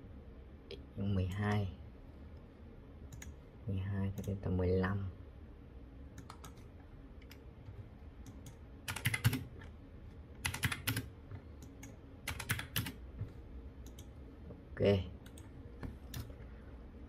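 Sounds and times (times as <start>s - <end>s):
computer keyboard keys clicking: 3.1s - 3.4s, 6.2s - 6.6s, 8.3s - 9.5s, 10.4s - 13.0s.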